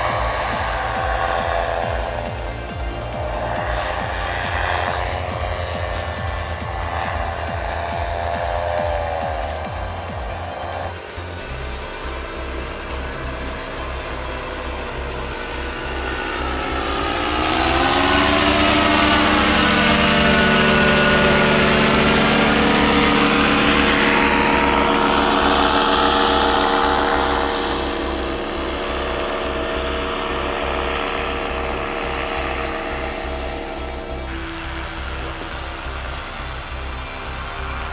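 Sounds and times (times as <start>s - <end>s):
paramotor engine droning: 0.0s - 37.9s.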